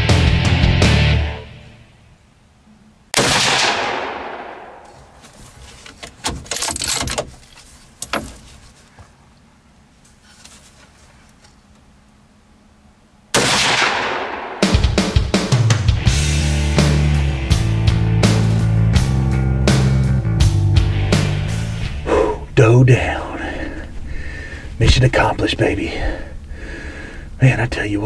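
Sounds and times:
rifle shots echoing: 0:03.2 - 0:05.2, 0:13.3 - 0:15.2.

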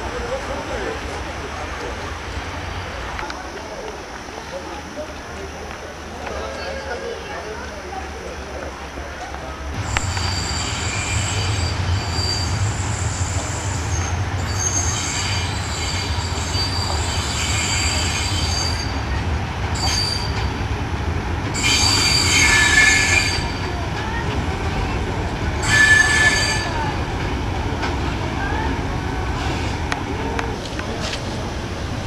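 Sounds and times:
low rumble of locomotive: 0:00.0 - 0:32.0
locomotive wheels squealing: 0:09.8 - 0:19.1, 0:19.7 - 0:20.6, 0:21.5 - 0:23.8, 0:25.6 - 0:26.9.

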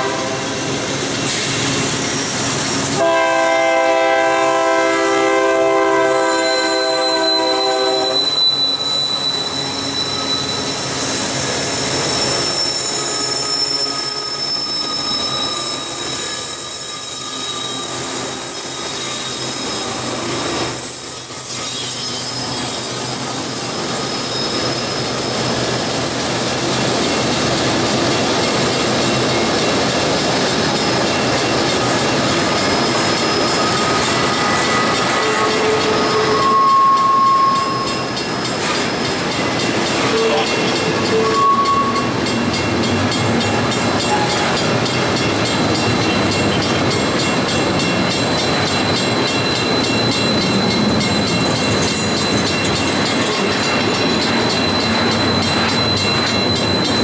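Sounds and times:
steel wheels rumbling on rail: 0:00.0 - 0:57.0
high-pitched wheel squeals: 0:06.0 - 0:25.6, 0:30.6 - 0:42.2, 0:45.4 - 0:57.0.

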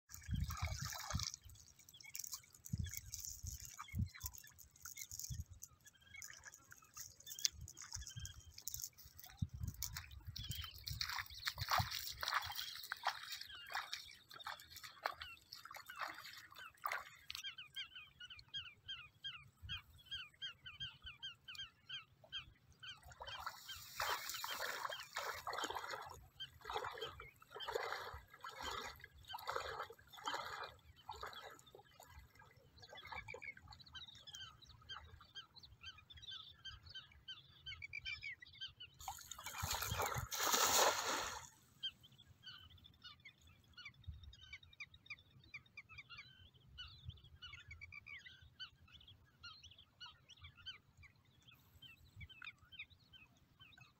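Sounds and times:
water sloshing from wading steps: 0:00.1 - 0:17.6, 0:23.2 - 0:34.7, 0:39.0 - 0:41.7.

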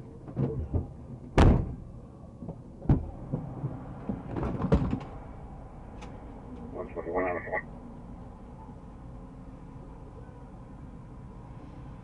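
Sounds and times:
low traffic rumble: 0:00.0 - 0:12.0.

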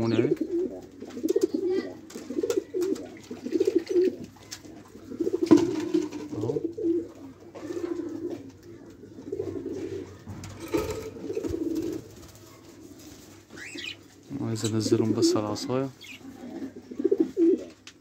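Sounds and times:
doves cooing: 0:00.0 - 0:18.0.

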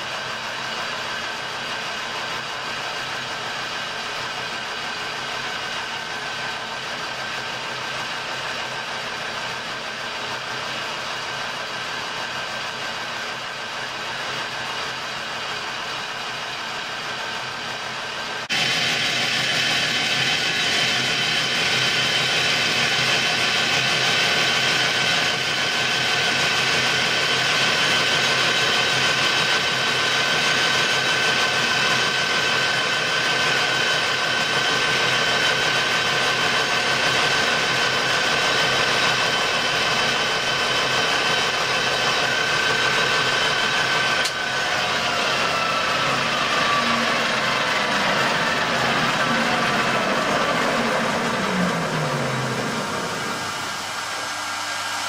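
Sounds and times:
metal lathe whining: 0:02.6 - 0:55.0
lathe click: 0:44.1 - 0:44.6.

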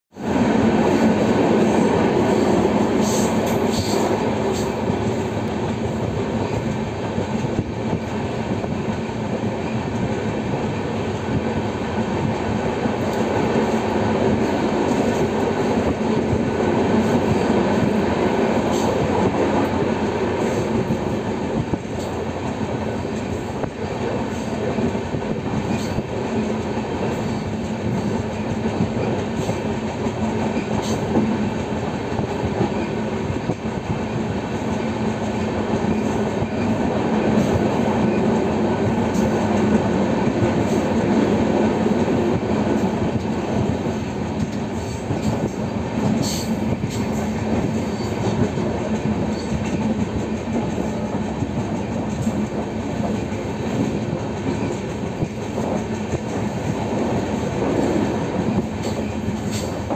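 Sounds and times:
train wheels rumbling on rail: 0:00.1 - 0:59.9.

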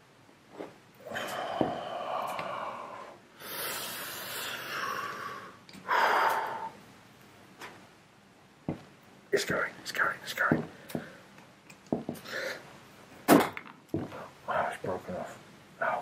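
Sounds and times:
man breathing with effort: 0:01.0 - 0:06.8, 0:12.1 - 0:12.7.

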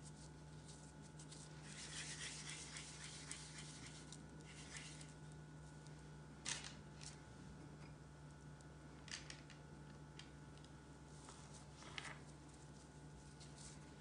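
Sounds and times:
hands rolling dough rustling: 0:00.0 - 0:05.9, 0:11.1 - 0:14.0.

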